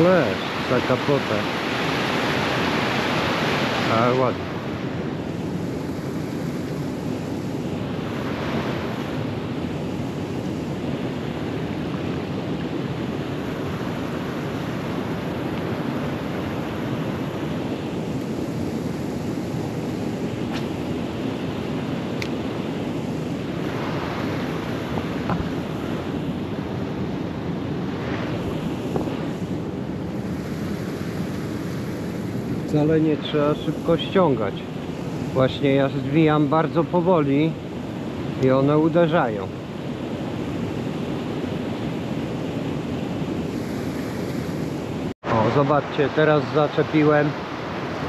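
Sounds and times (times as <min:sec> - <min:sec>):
rushing water: 0:00.0 - 0:48.0
wind on microphone: 0:00.0 - 0:48.0.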